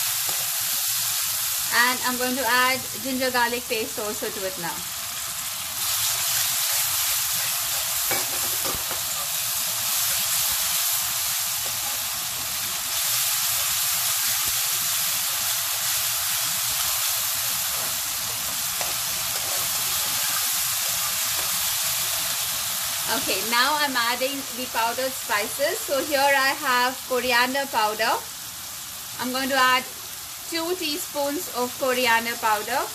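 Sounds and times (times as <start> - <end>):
food sizzling in hot oil: 0.0 - 32.9
spoon stirring and scraping pan: 5.9 - 22.2.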